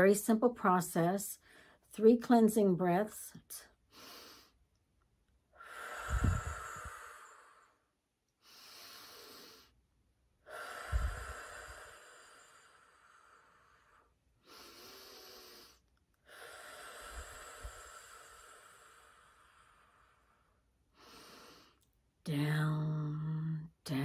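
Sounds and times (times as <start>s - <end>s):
woman breathing deeply: 5.5s - 9.8s, 10.4s - 21.9s.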